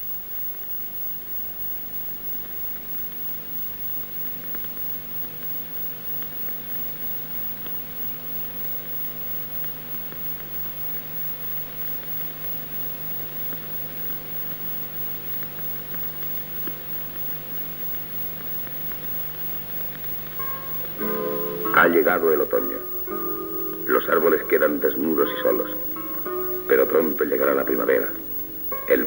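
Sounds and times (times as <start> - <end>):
film soundtrack hiss: 0.0 - 29.0
faint clicks: 1.8 - 21.1
low hum: 19.6 - 29.0.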